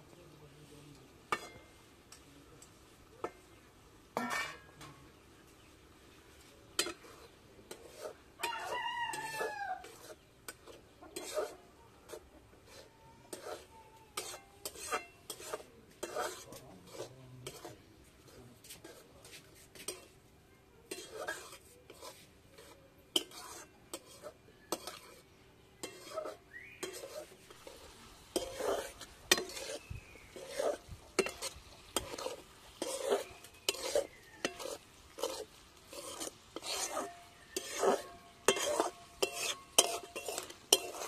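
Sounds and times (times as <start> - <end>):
metal spatula scraping wok: 1.0 - 41.0
rooster crowing: 8.4 - 10.0.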